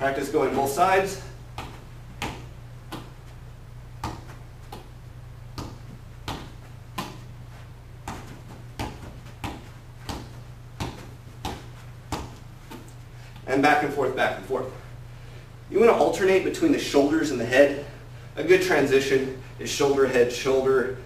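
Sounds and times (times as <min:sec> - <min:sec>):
ball bouncing off head: 0:01.6 - 0:03.2, 0:04.0 - 0:07.3, 0:08.0 - 0:12.9.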